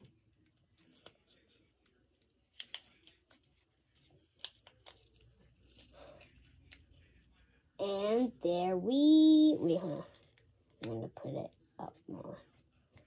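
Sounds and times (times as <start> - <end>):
paper and tape crinkling: 0.4 - 7.3, 9.6 - 11.1.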